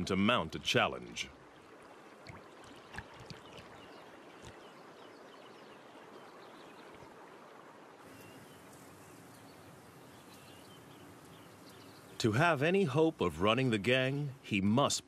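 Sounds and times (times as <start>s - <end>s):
soft wash of river water: 0.0s - 14.9s
birds chirping: 2.6s - 7.1s, 8.0s - 14.3s.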